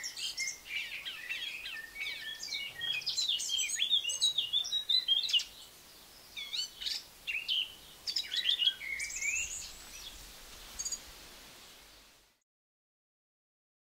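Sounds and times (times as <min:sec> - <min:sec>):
bird warbling song: 0:00.0 - 0:11.2
light outdoor hiss: 0:00.0 - 0:12.4.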